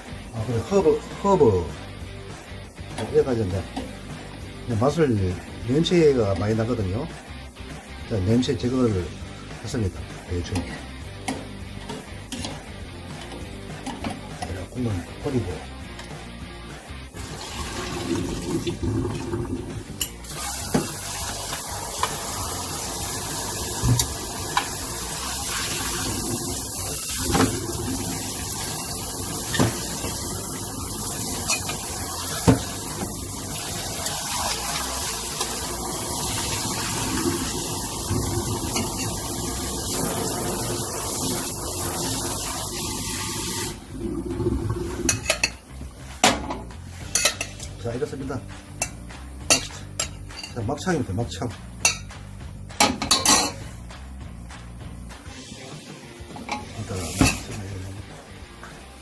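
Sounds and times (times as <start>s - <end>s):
tap water running into metal pot: 17.2s - 45.6s.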